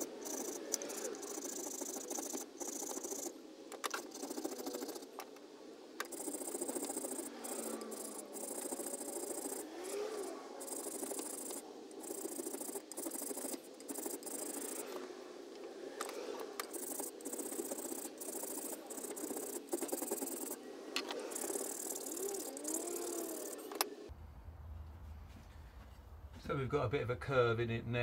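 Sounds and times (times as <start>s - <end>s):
rasp scraping wood: 0.0s - 5.2s, 6.0s - 15.0s, 16.6s - 23.6s.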